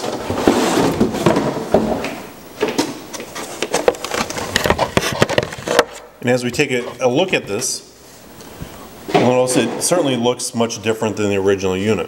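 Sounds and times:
packaging rustling and clicking: 0.0s - 6.0s.

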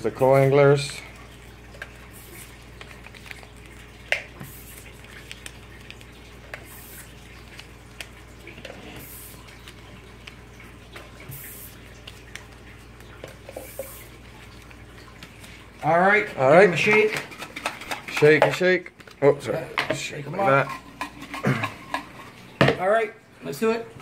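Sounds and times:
paper crinkle: 1.4s - 15.8s
paper rustling and creasing: 1.8s - 13.2s.

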